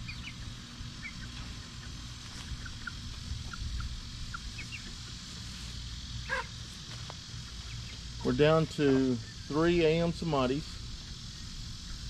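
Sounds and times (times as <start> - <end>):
chicks peeping: 0.0 - 6.7
steady low rumble: 0.0 - 12.0.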